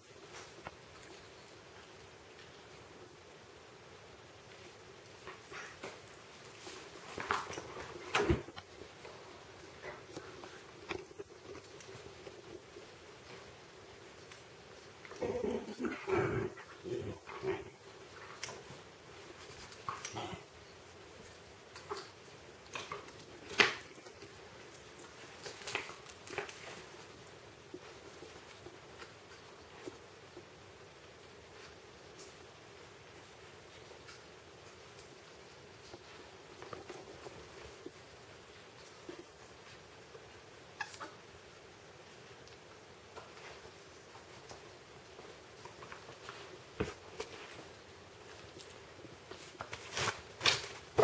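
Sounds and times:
animals scuffling on cushion: 0:42.2 - 0:51.0.

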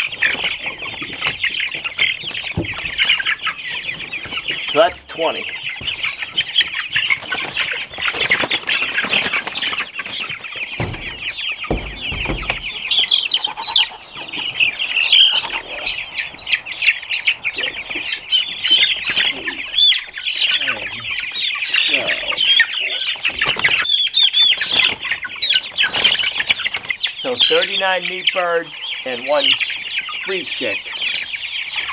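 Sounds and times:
chicks peeping: 0:00.0 - 0:31.9
dull thumps: 0:10.1 - 0:13.3.

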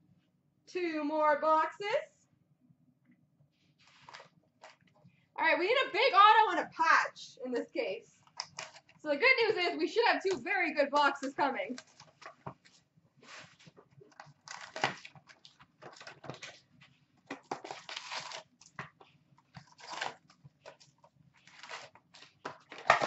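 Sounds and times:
cardboard packaging rustling: 0:03.8 - 0:04.9, 0:11.8 - 0:23.0.

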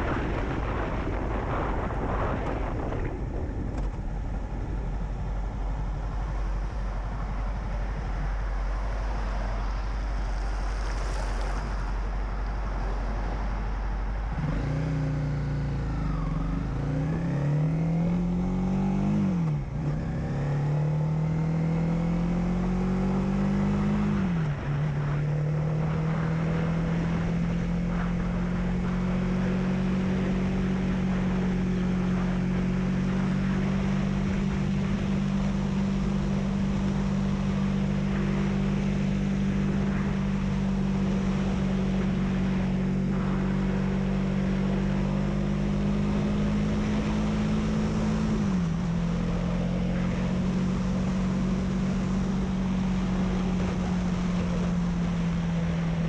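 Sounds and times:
wind noise: 0:00.0 - 0:20.5, 0:21.3 - 0:56.0
motorcycle engine accelerating: 0:14.3 - 0:56.0.

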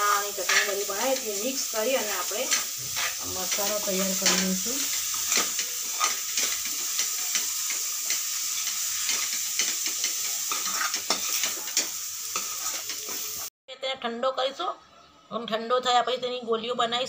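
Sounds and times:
filling sizzling in oil: 0:00.0 - 0:13.5
metal spoon scraping and tapping: 0:00.4 - 0:01.3, 0:02.5 - 0:13.2.

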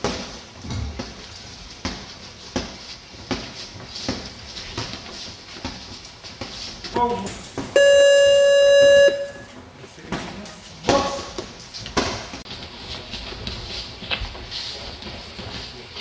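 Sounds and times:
buzzer steady tone: 0:07.8 - 0:09.5.

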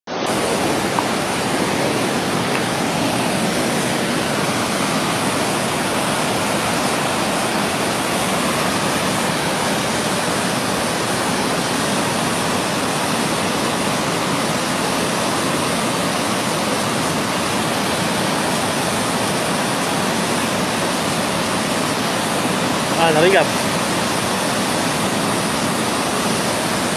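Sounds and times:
river rapids rushing: 0:00.1 - 0:26.9.

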